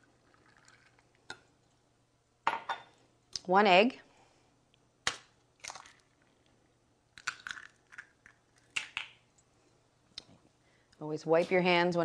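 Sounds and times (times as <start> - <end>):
egg cracking: 0.0 - 1.8, 5.0 - 9.4
eggshell crunching clicks: 7.2 - 9.2.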